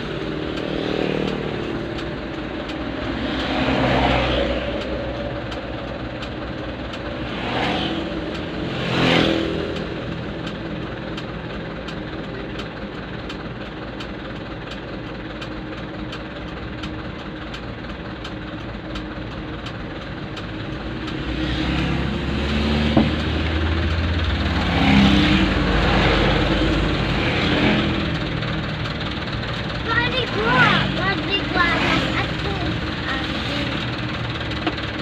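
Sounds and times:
motorcycles passing: 0.0 - 6.2, 6.8 - 10.5, 20.9 - 35.0
diesel engine idling: 0.0 - 35.0
light regular ticking: 0.0 - 35.0
passing traffic rumble: 0.0 - 35.0.

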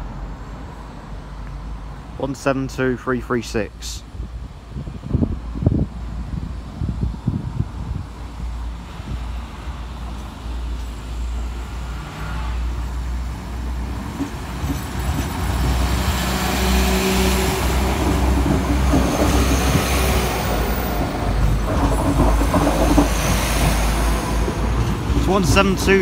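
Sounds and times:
wheels rumbling on rails: 4.0 - 26.0
train engines whining: 7.7 - 26.0.

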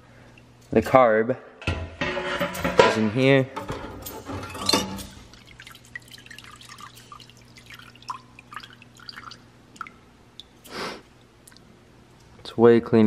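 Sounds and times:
fluid dripping into tank: 0.2 - 0.7, 5.0 - 11.7
ultrasonic cleaner hum: 5.0 - 12.4.

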